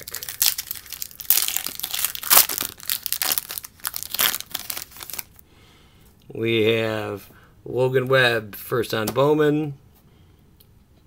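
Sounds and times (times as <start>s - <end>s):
wrapper crinkling and tearing: 0.0s - 5.4s.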